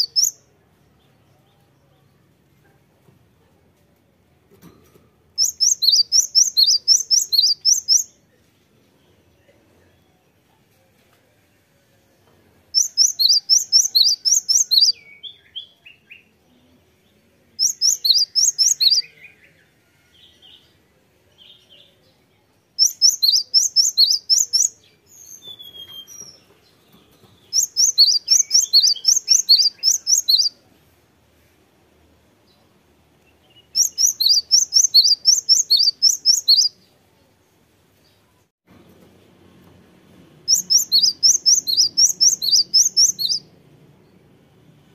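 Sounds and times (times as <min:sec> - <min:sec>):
bird singing rapid high notes: 0:05.4 - 0:08.1, 0:12.8 - 0:14.9, 0:17.6 - 0:19.0, 0:22.8 - 0:26.2, 0:27.5 - 0:30.5, 0:33.5 - 0:36.7, 0:40.5 - 0:43.5.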